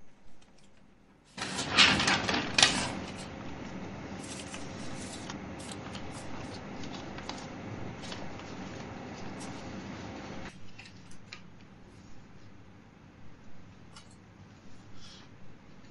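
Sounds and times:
paper and chair rustling: 1.3 - 12.1.

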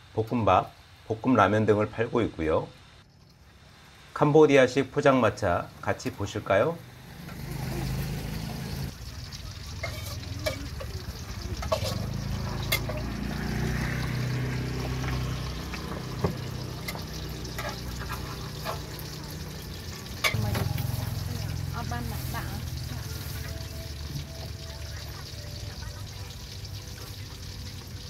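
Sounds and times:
metal spatula scraping a wok: 9.6 - 13.1, 16.8 - 21.0.

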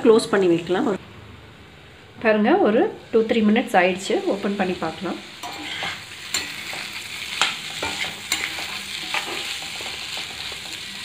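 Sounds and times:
masala sizzling in a pan: 0.0 - 1.0, 1.6 - 11.0
spatula scraping and knocking pan: 5.4 - 11.0.

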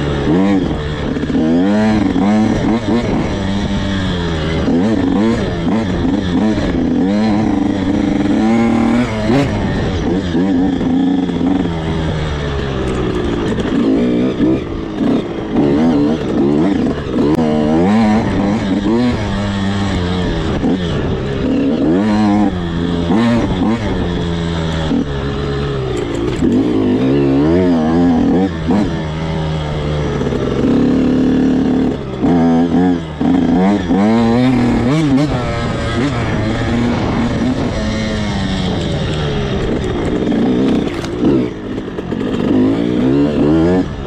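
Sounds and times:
dirt bike engine revving: 0.0 - 44.0.

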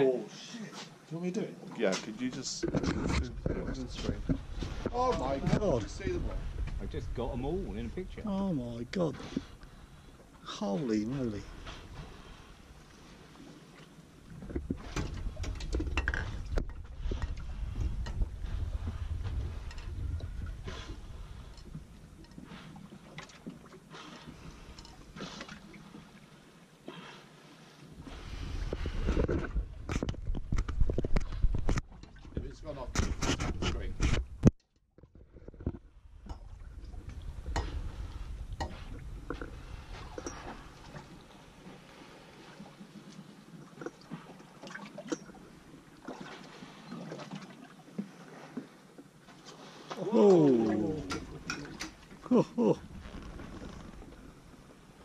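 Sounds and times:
water lapping against hull: 0.0 - 55.0
wind rumble on microphone: 2.6 - 9.4, 14.3 - 22.4, 28.0 - 41.4.

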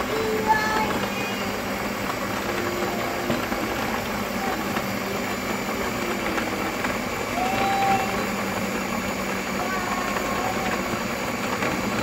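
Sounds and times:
stand mixer motor whirring: 0.0 - 12.0.

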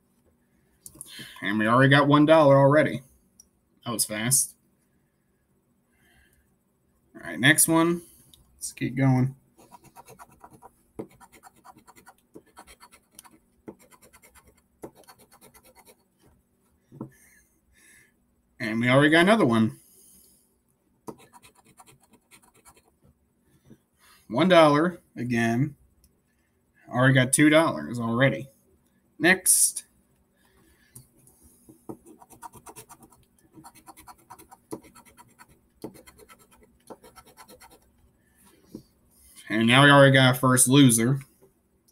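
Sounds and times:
lottery ticket being scratched: 9.6 - 16.1, 21.2 - 22.9, 32.1 - 37.9.

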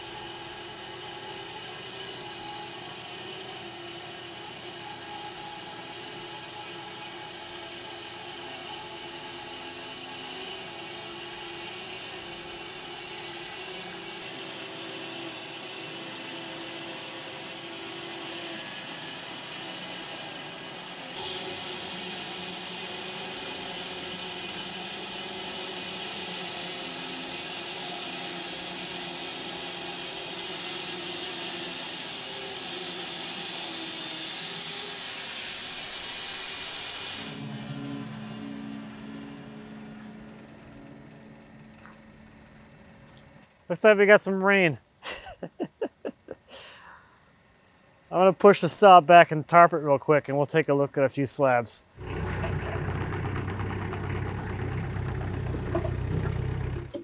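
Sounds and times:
saw blade hissing in wood: 0.0 - 39.3
bandsaw mill engine drone: 0.0 - 44.1, 51.9 - 57.0.

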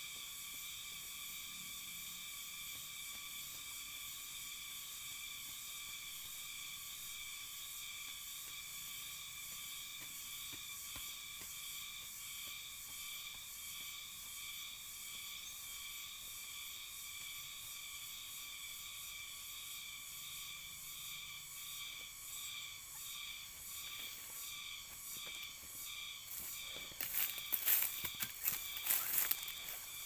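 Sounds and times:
pulsing insect buzzing: 0.0 - 30.0.

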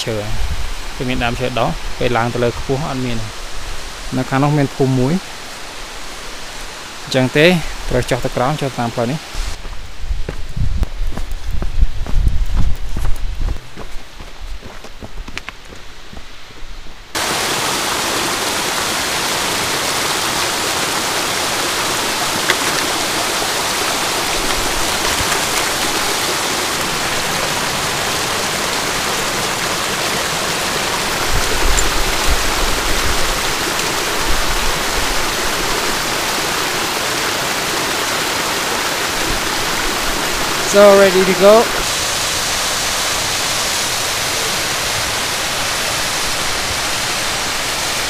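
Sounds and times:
stream rushing over stones: 0.0 - 11.6, 17.1 - 48.0
low bumps: 9.6 - 16.3.

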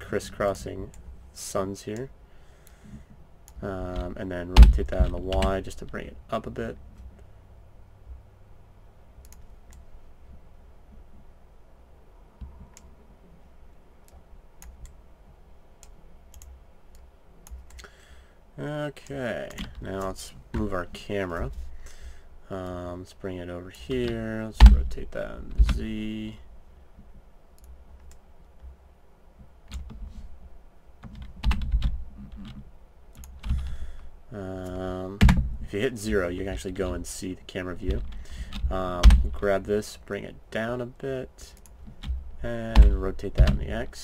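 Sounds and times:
low steady hum: 0.0 - 44.0
keyboard and mouse clicks: 9.2 - 9.8, 15.8 - 17.9.

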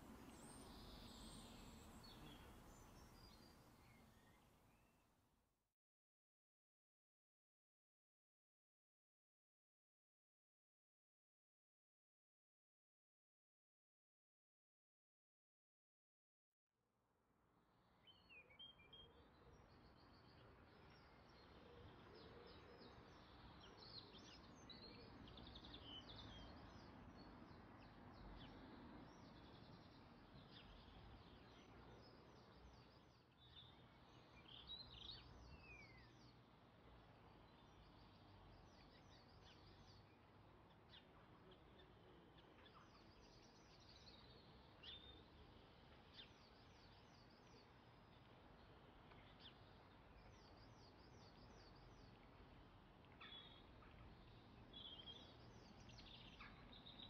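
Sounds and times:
faint birds chirping: 0.0 - 5.1, 17.9 - 57.0.

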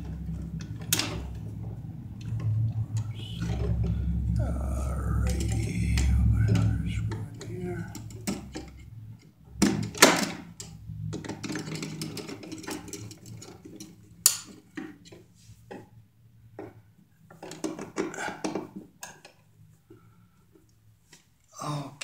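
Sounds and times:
low steady hum: 0.0 - 17.3.

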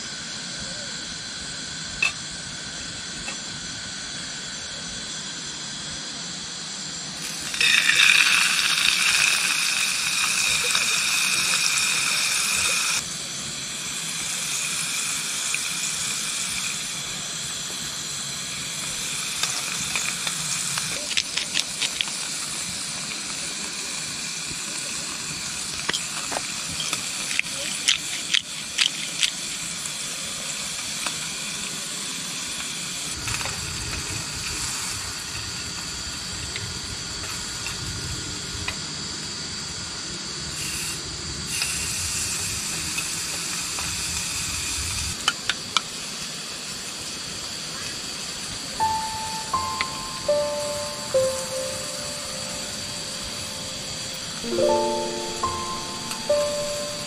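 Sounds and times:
beef sizzling in oil: 7.2 - 13.0.

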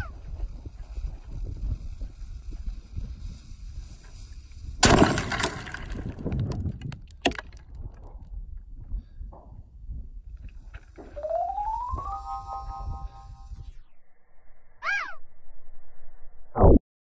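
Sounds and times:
cannon blast: 4.8 - 6.2
sharp crack: 4.8 - 8.0.

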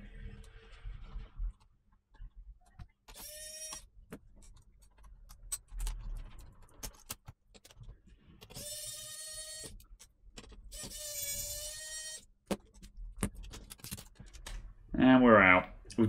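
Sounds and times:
electric screwdriver motor whining: 3.1 - 3.8, 8.5 - 9.8, 10.7 - 12.2.

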